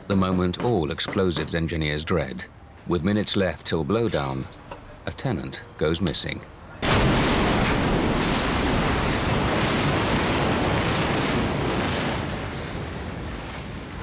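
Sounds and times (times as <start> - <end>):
building collapsing rumble: 6.8 - 14.0.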